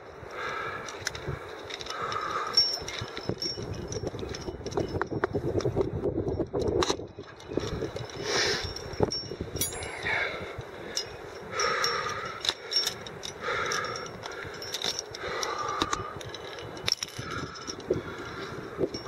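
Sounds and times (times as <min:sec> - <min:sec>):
climbing gear clinking: 0:00.0 - 0:19.0
person breathing: 0:00.3 - 0:02.9, 0:09.7 - 0:19.0.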